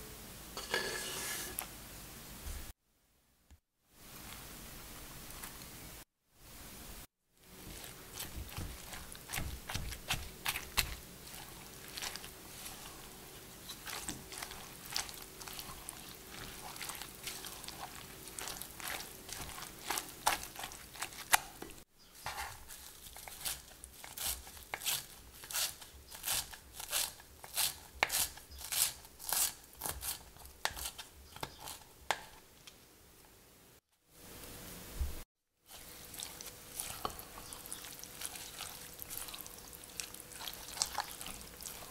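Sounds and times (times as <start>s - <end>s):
spatula scraping glass bowl: 7.7s - 21.2s, 35.7s - 39.5s
knife chopping on cutting board: 8.1s - 11.0s.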